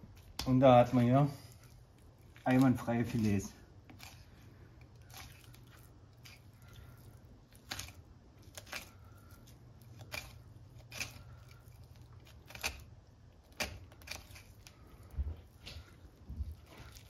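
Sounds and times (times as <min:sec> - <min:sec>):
low steady hum: 0:00.0 - 0:17.0
knife slicing fish: 0:07.5 - 0:15.1.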